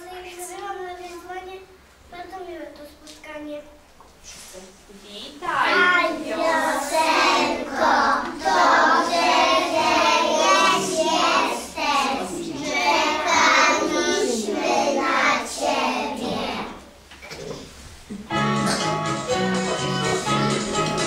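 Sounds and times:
children singing: 0:05.6 - 0:16.9.

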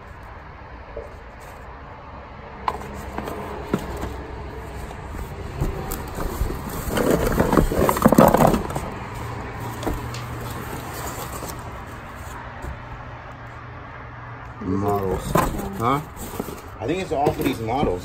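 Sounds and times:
cardboard scraping and rustling: 0:02.6 - 0:13.0, 0:14.8 - 0:18.0.

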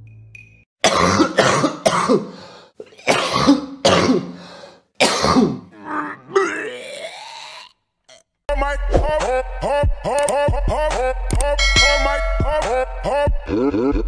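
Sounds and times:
person coughing: 0:00.9 - 0:04.4, 0:05.0 - 0:05.7.

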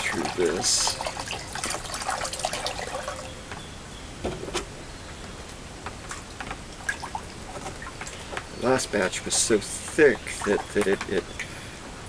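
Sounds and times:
water pouring through a strainer: 0:00.0 - 0:03.3.

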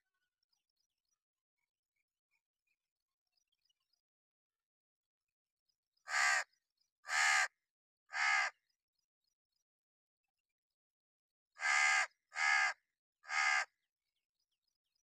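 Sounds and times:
crow cawing: 0:06.1 - 0:06.5, 0:07.1 - 0:08.6, 0:11.6 - 0:13.8.

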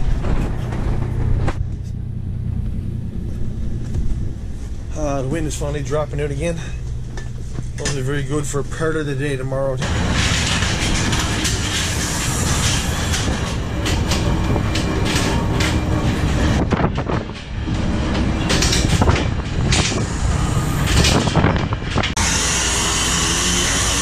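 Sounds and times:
diesel engine droning: 0:00.0 - 0:24.0
gear and hull knocking: 0:09.8 - 0:22.2
wind rushing: 0:09.8 - 0:22.2.

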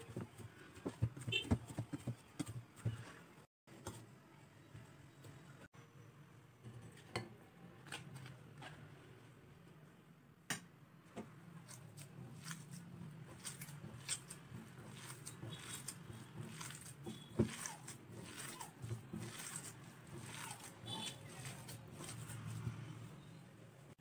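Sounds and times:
soft squishing of mashed lentils: 0:11.3 - 0:24.0.

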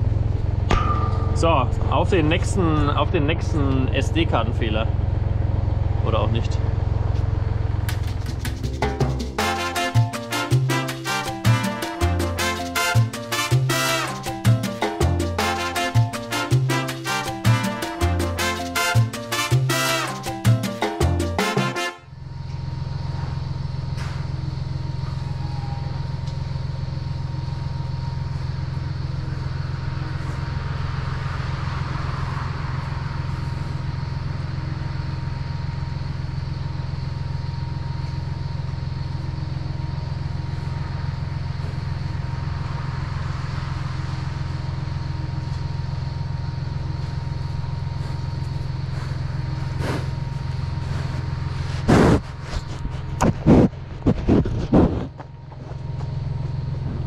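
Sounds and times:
farm machine engine running: 0:00.0 - 0:57.0
faint steady whine: 0:22.0 - 0:57.0.

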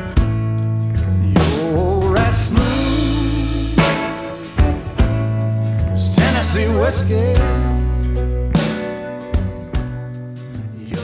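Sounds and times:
instrumental song music: 0:00.0 - 0:11.0
sharp drum hits: 0:02.6 - 0:05.5.

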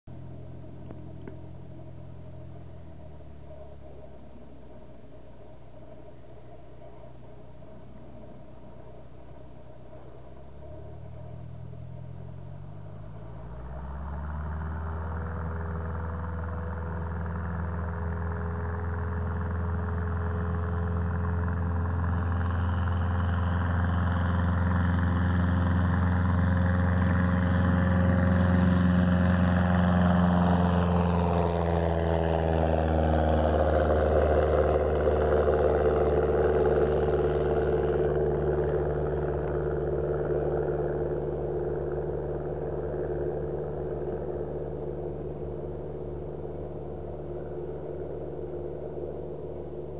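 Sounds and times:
propeller plane taking off: 0:00.1 - 0:49.9.

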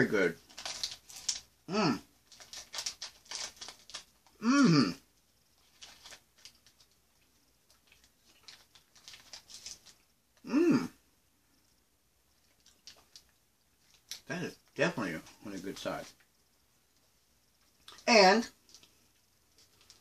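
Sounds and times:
man humming mmm: 0:01.7 - 0:02.0, 0:04.4 - 0:05.0, 0:10.4 - 0:11.0.

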